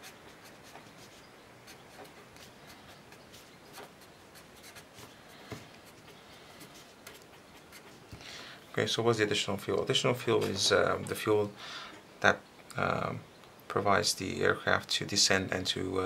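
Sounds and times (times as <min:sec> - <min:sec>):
marker writing on paper: 0:00.0 - 0:08.0.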